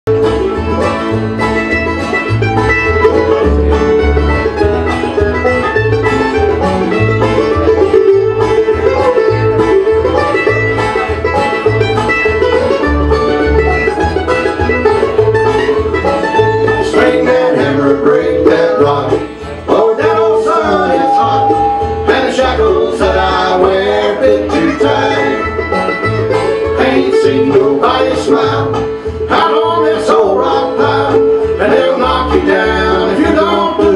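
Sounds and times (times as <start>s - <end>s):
acoustic guitars: 0.1s - 33.9s
bass line: 0.1s - 33.9s
mandolin strumming and picking: 0.1s - 33.9s
person singing: 16.9s - 25.5s.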